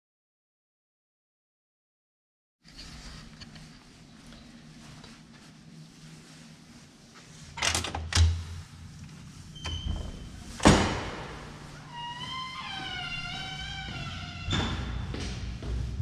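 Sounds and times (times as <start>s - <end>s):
door thud: 10.6s - 11.5s.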